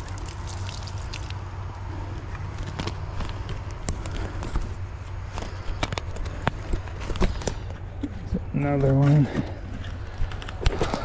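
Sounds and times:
dry twigs snapping and crackling: 0:00.0 - 0:07.8
steady low rumble: 0:00.0 - 0:11.0.

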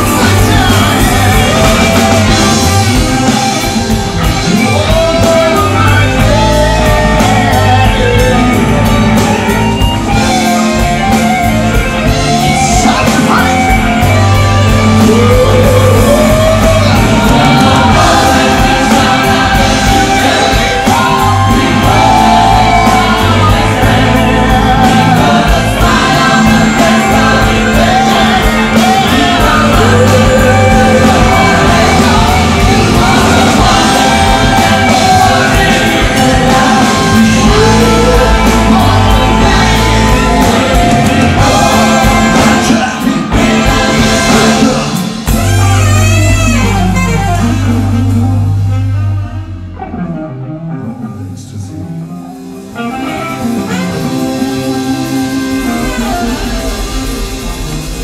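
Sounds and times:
backing choir singing: 0:00.0 - 0:48.8, 0:52.4 - 0:58.0
lead singer singing: 0:00.0 - 0:48.8, 0:50.8 - 0:58.0
bass guitar: 0:00.0 - 0:58.0
drums: 0:00.0 - 0:58.0
electric guitar: 0:00.0 - 0:58.0.

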